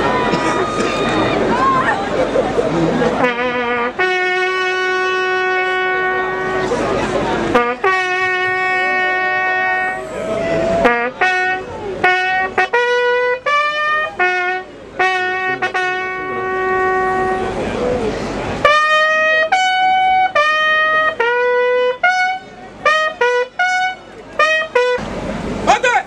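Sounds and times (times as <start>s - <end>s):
bugle playing long notes: 3.2s - 6.8s, 7.5s - 17.6s, 18.6s - 25.0s.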